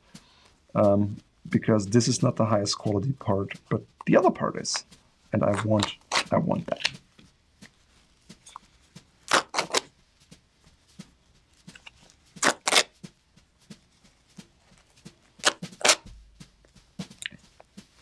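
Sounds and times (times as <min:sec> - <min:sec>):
small rustles and clicks: 0:00.0 - 0:18.0
leather tearing: 0:05.5 - 0:06.9, 0:09.3 - 0:09.9, 0:11.8 - 0:12.9, 0:15.4 - 0:16.1.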